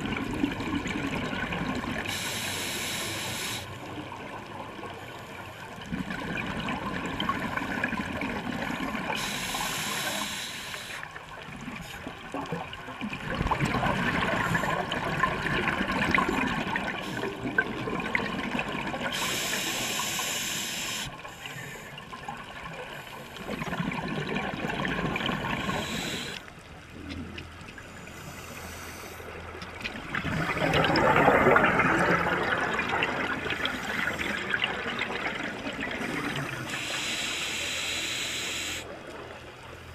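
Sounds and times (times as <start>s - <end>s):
exhaled air bubbling underwater: 0.0s - 39.9s
regulator inhale hiss: 2.1s - 3.8s, 9.1s - 11.1s, 19.1s - 22.0s, 25.6s - 26.4s, 27.9s - 29.4s, 36.1s - 39.0s.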